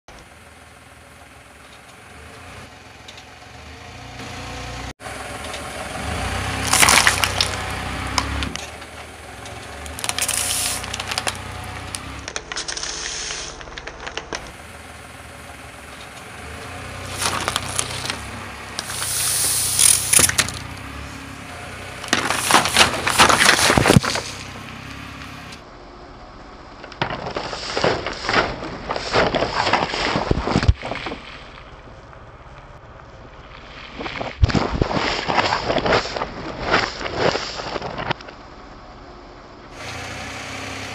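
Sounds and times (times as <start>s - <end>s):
plastic bottle crackling and bursting: 6.7s - 7.7s, 9.9s - 14.4s, 17.2s - 18.2s.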